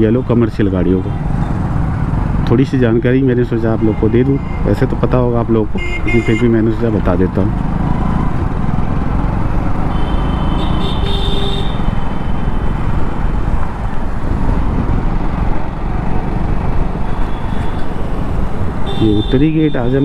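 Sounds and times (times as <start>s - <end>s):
traffic: 0.0s - 20.0s
motorcycle engine running: 7.3s - 19.0s.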